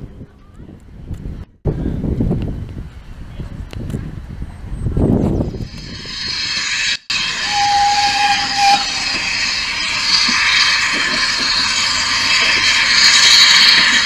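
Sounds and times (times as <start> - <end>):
steam hissing from locomotive: 5.6 - 14.0
short whistle note: 7.1 - 9.6.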